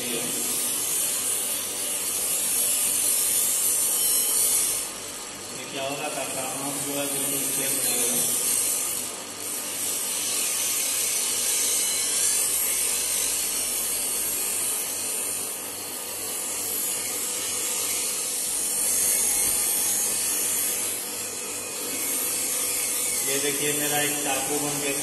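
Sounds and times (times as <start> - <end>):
grinding hiss on blade: 0.0 - 25.0
grinder motor hum: 10.4 - 25.0.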